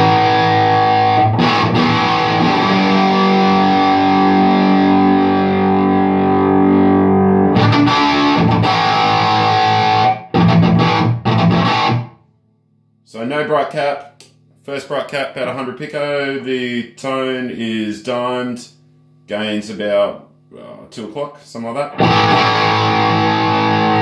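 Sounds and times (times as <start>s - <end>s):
electric guitar chords: 0.0s - 12.3s, 21.9s - 24.0s.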